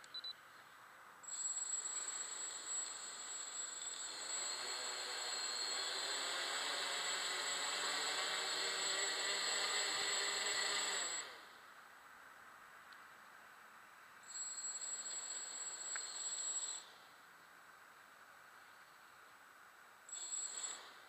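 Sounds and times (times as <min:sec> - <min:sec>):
drone motors humming and whining: 0:01.4 - 0:11.6.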